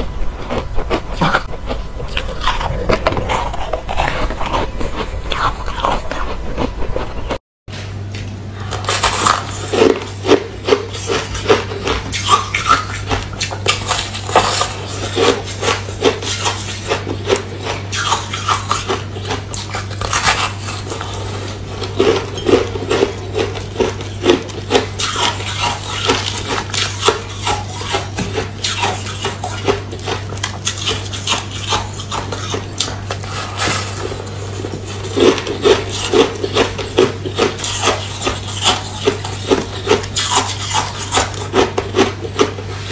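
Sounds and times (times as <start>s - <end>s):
crisp crunching chewing: 0.0s - 7.4s, 8.1s - 42.9s
steady low hum: 0.0s - 42.9s.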